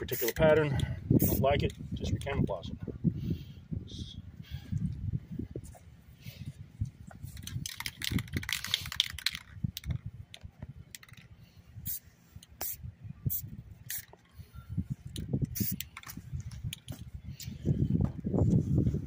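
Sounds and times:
wind rumble on microphone: 0:00.0 - 0:19.0
spray paint can hissing: 0:01.2 - 0:01.4, 0:07.4 - 0:09.9, 0:11.8 - 0:12.0, 0:12.6 - 0:14.2, 0:15.4 - 0:16.1.

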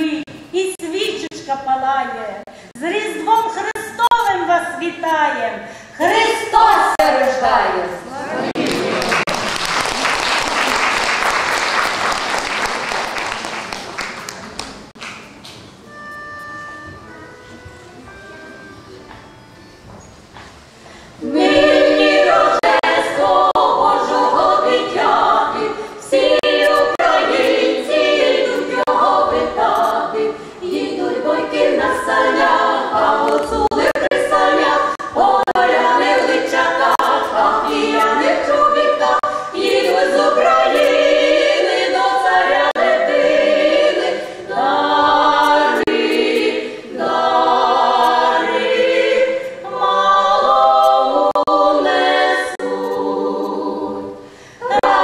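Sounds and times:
women's choir singing a cappella: 0:06.0 - 0:09.3, 0:21.2 - 0:55.0.

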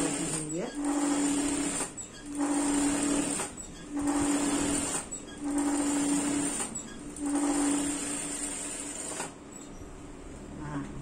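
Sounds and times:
sewing machine stitching: 0:00.0 - 0:09.4.

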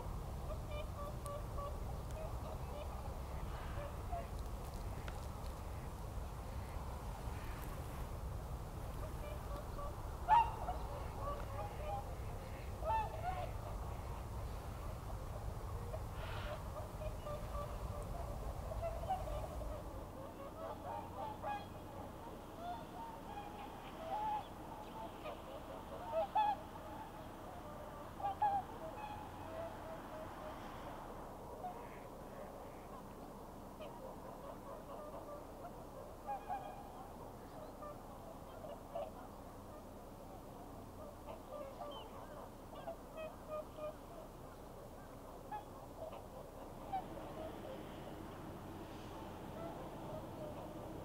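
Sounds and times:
low background noise: 0:00.0 - 0:51.0
swans honking: 0:08.7 - 0:33.1, 0:33.8 - 0:39.9, 0:40.8 - 0:51.0.

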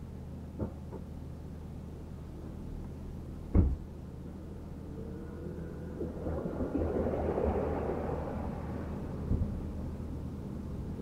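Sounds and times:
sharp thump: 0:03.5 - 0:03.8
rushing noise: 0:04.4 - 0:11.0.

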